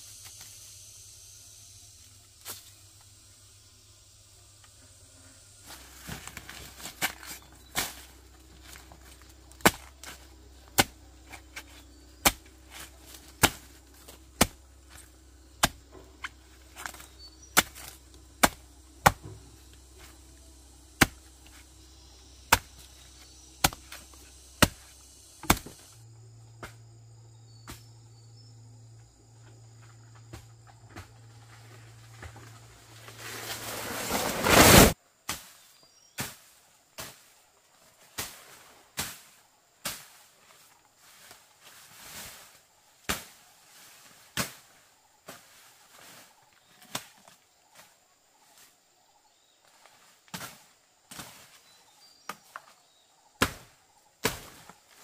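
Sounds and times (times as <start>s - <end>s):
sharp chopping strokes: 5.7s - 26.0s, 33.1s - 35.6s, 53.4s - 54.7s.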